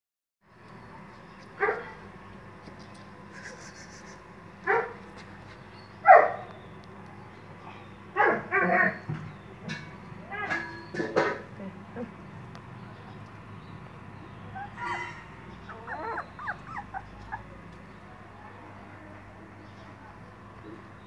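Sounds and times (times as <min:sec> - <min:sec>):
puppies yipping: 0:14.3 - 0:18.0.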